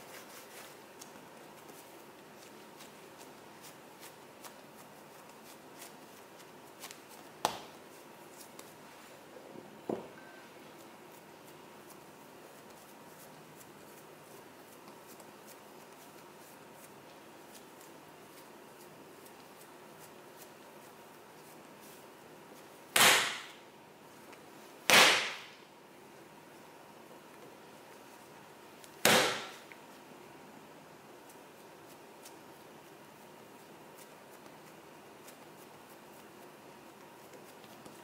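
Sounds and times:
hands kneading dough: 0.0 - 38.0
sharp slaps on dough: 6.8 - 7.8, 22.9 - 23.6, 24.9 - 25.6, 28.8 - 29.8.

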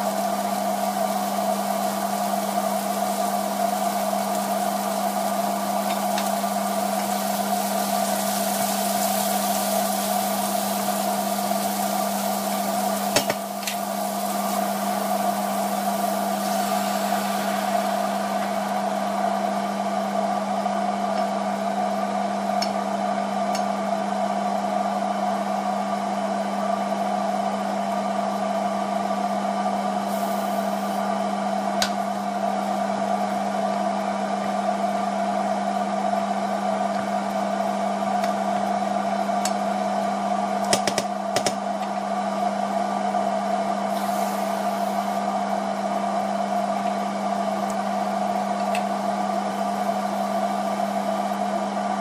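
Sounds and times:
electric fan motor humming: 0.0 - 52.0.

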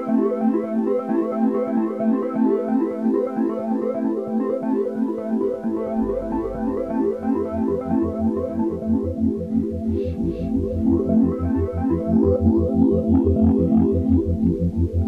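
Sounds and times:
calm electronic music: 0.0 - 15.0
deep bass: 5.8 - 15.0.

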